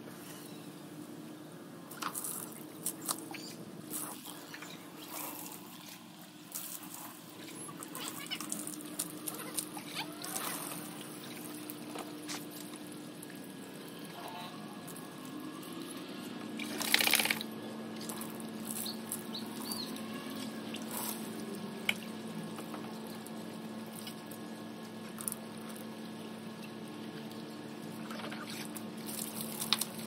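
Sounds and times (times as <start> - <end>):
faint steady hum: 0.0 - 30.0
hose water pouring on wooden deck: 16.5 - 19.2.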